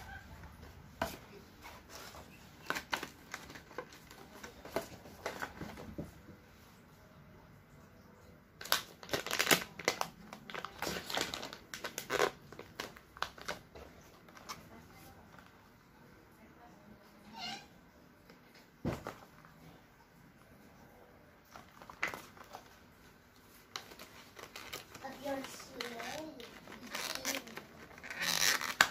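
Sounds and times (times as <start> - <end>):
plastic crinkling: 0.0 - 6.0, 8.6 - 15.5, 21.4 - 28.9.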